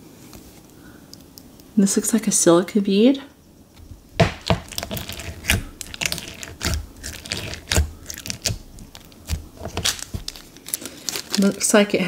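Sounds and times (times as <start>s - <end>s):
slime clicks and crackles: 4.4s - 11.7s.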